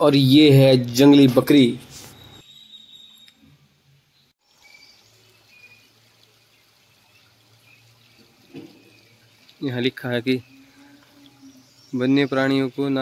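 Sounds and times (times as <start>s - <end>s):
faint high chirps: 2.1s - 5.9s.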